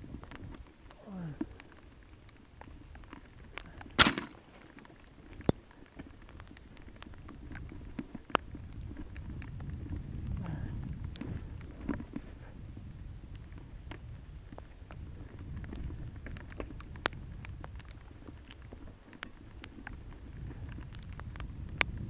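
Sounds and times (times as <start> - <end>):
bike clicks and knocks: 2.6 - 10.0.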